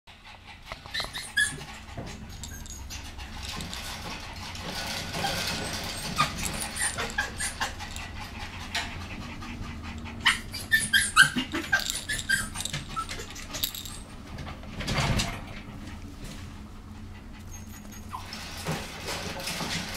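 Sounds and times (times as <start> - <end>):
puppy whimpering and squeaking: 0.7 - 14.1, 17.4 - 18.6
plush toy clicks and rustling: 2.3 - 8.2, 10.2 - 14.1.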